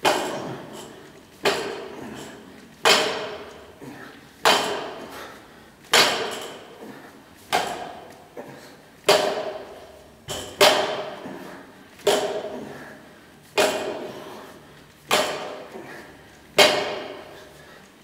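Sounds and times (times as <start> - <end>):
barbell thudding on platform: 16.6 - 17.2.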